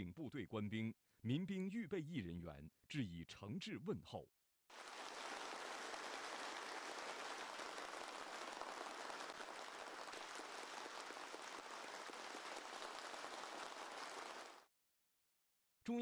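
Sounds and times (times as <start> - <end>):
large audience applauding: 4.7 - 14.7.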